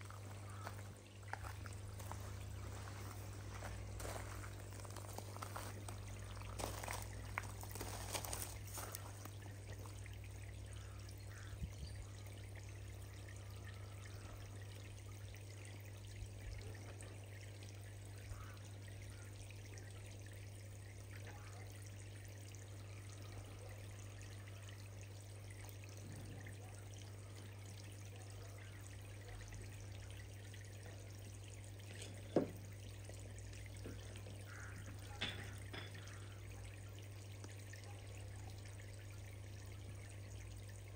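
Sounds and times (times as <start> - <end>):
low steady hum: 0.0 - 40.9
pond water trickling: 0.0 - 40.9.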